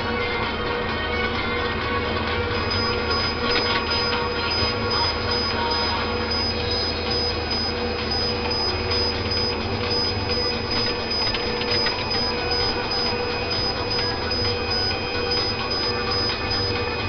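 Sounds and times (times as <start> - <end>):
harvester engine and hydraulics whine: 1.6 - 17.0.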